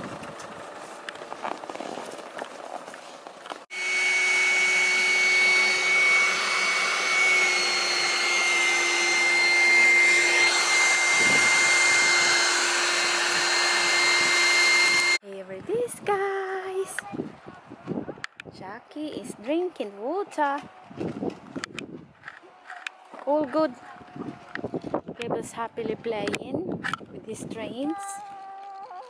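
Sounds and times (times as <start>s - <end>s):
electric air pump whirring: 3.5s - 15.2s.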